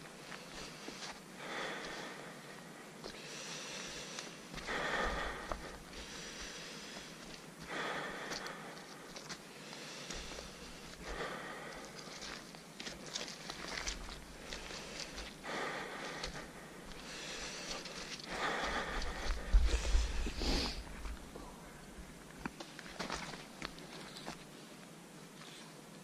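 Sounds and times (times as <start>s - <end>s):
footsteps on leafy dirt trail: 0.0s - 2.2s, 3.0s - 21.4s, 22.4s - 24.5s
heavy breathing: 0.2s - 12.4s, 13.7s - 22.0s.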